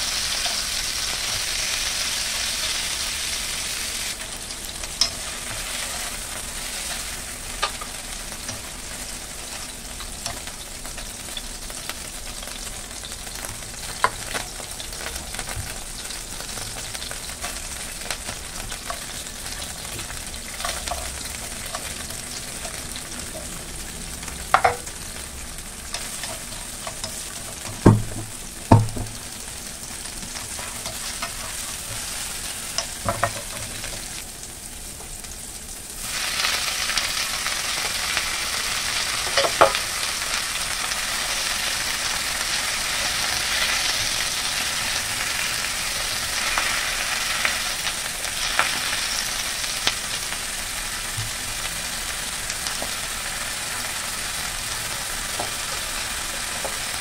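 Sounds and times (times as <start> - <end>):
oil sizzling in a frying pan: 0.0 - 57.0
spatula knocking against pan: 24.5 - 24.9, 27.6 - 29.2.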